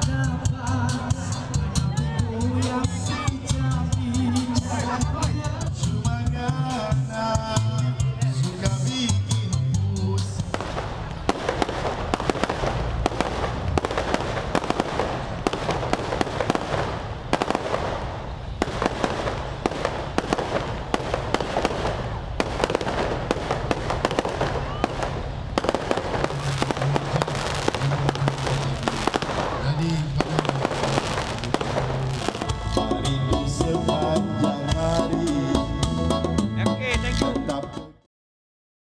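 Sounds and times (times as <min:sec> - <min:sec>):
fireworks popping and banging: 0:10.4 - 0:32.9.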